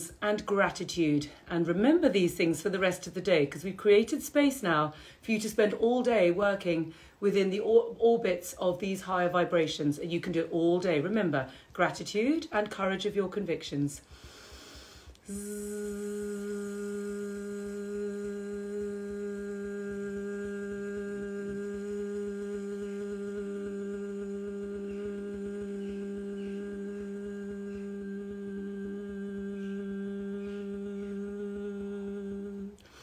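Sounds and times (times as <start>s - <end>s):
person humming low note: 15.2s - 33.0s.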